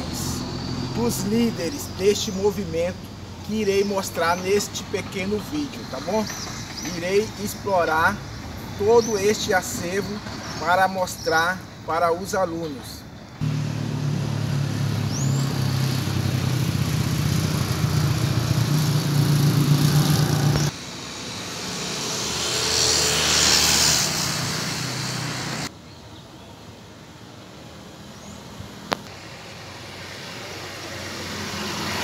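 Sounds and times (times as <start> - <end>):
street background: 0.0 - 32.0
vehicle engine humming: 13.3 - 25.7
vehicle passing: 13.4 - 25.7, 29.5 - 32.0.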